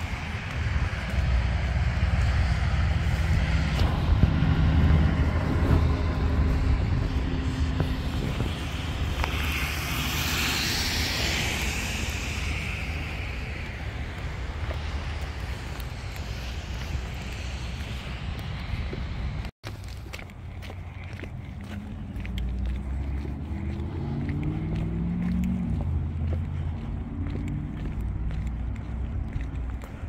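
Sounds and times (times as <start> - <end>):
tyres hissing on wet road: 0.0 - 19.5
road traffic: 0.0 - 30.0
wind rumbling on microphone: 0.0 - 30.0.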